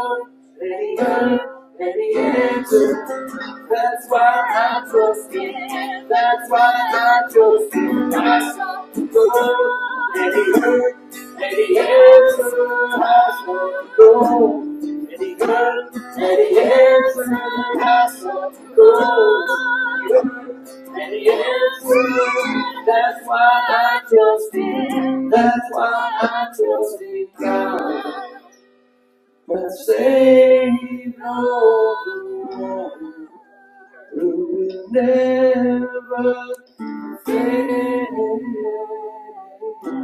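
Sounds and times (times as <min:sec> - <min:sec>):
person singing worship song: 0:00.0 - 0:28.6, 0:29.5 - 0:40.0.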